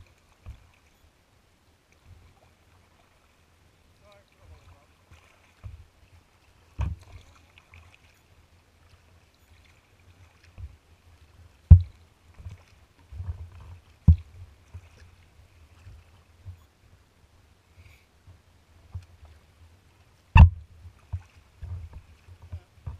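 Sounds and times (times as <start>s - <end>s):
kayak paddling: 0.0s - 22.9s
knocks on kayak hull: 11.7s - 11.9s, 20.4s - 21.2s.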